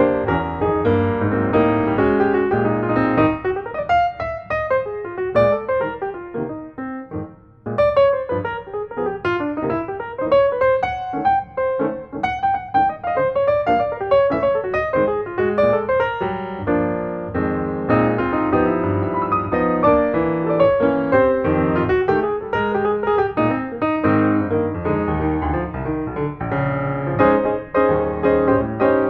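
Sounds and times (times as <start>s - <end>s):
piano music: 0.0s - 29.0s.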